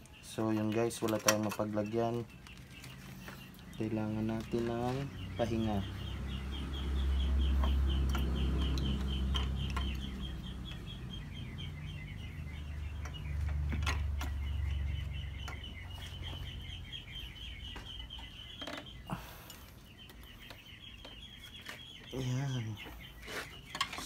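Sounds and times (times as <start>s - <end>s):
bird chirping: 0.0s - 24.0s.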